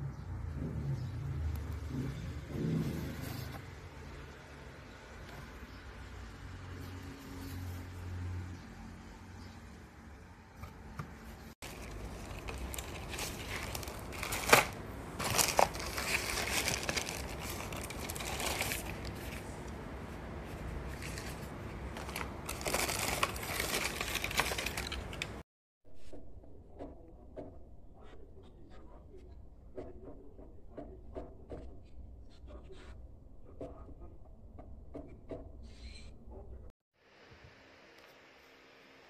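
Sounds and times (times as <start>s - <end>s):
plastic wrap crinkling: 11.6s - 19.6s, 20.8s - 25.4s.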